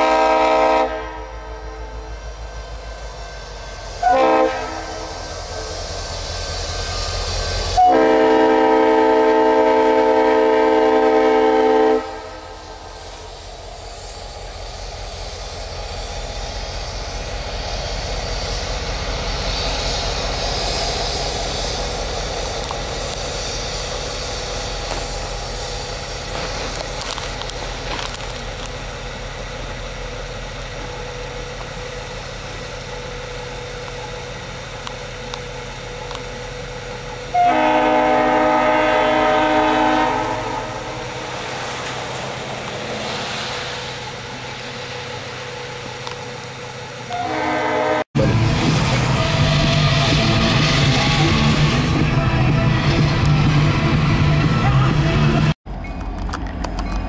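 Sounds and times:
locomotive air horn blasts: 0:00.0 - 0:02.0, 0:04.0 - 0:05.2, 0:07.8 - 0:12.8, 0:37.3 - 0:41.3, 0:47.1 - 0:48.3
diesel engine rumble: 0:12.1 - 0:37.4, 0:48.2 - 0:57.0.

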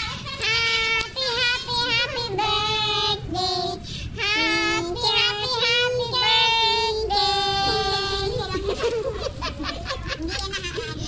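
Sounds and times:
high singing voice: 0:00.0 - 0:09.0
singer breathing: 0:03.8 - 0:04.2.

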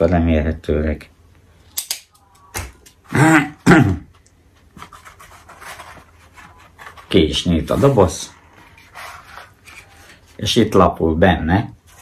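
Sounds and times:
man clearing throat: 0:03.1 - 0:04.2.

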